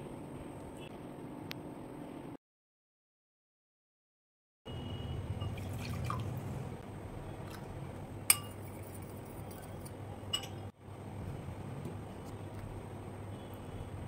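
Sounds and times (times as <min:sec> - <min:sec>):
metal spoon stirring: 0:08.3 - 0:10.6
spoon clinking against glass: 0:08.3 - 0:10.6.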